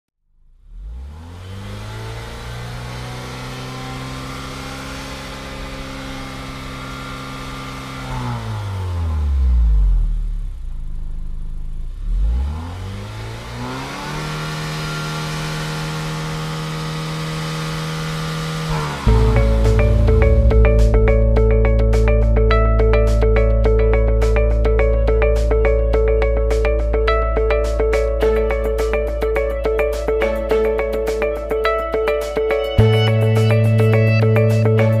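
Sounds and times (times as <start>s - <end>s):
engine drone sound effect: 0.5s - 27.4s.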